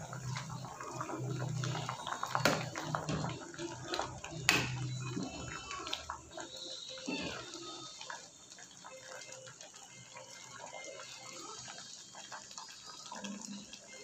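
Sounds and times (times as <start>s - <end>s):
soup bubbling in a pot: 0.0s - 14.0s.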